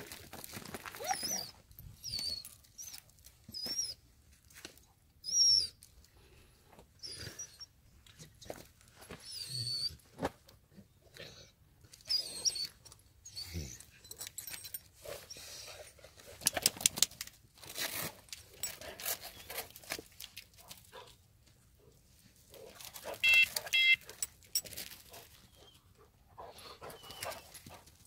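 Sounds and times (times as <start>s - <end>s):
collar straps and buckles rustling: 17.2s - 21.1s, 22.5s - 25.7s
short electronic beeps: 23.2s - 24.1s.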